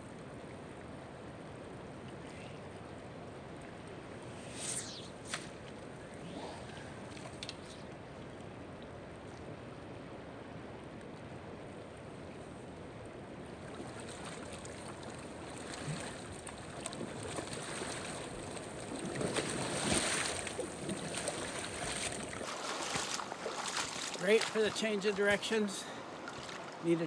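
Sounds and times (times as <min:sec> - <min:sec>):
water splashing around wading legs: 0:13.7 - 0:26.9
river current rushing: 0:17.6 - 0:27.0.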